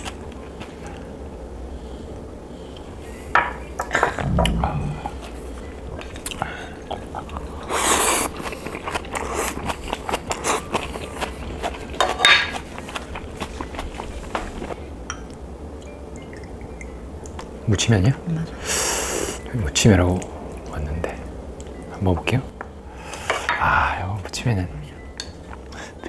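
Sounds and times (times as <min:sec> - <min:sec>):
chewing and mouth noises: 0:04.2 - 0:14.9.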